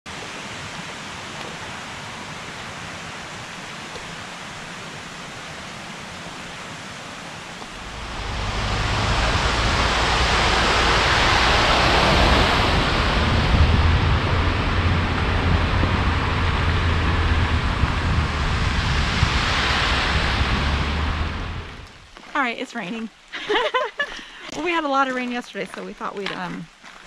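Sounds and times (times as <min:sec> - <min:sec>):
rushing water: 0:00.1 - 0:27.0
deep rumble: 0:07.6 - 0:22.5.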